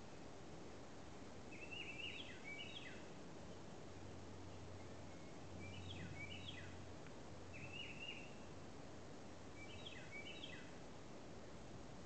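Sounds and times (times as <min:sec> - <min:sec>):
faint low hum: 0:00.0 - 0:12.0
outdoor background hiss: 0:00.0 - 0:12.0
songbird singing: 0:01.4 - 0:08.7, 0:09.3 - 0:10.9.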